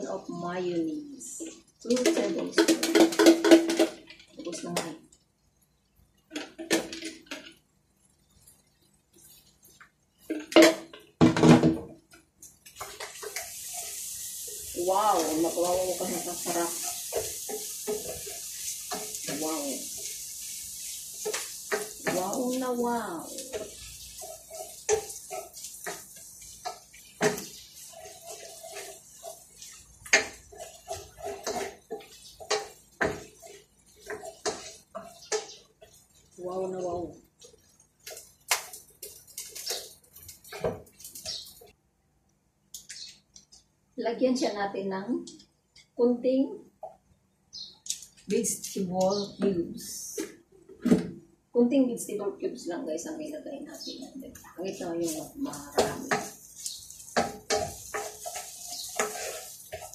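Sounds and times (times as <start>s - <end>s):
spatula scraping in frying pan: 12.6s - 41.8s, 53.7s - 59.9s.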